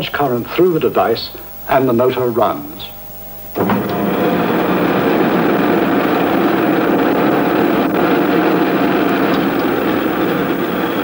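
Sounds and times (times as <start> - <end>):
electric motor running: 3.6 - 11.0.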